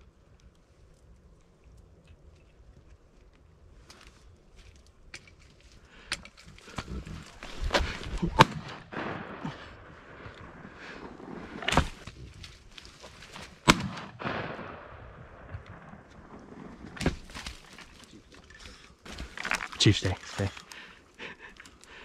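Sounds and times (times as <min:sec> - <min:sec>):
shotgun shots: 0:08.3 - 0:10.2, 0:13.6 - 0:16.7.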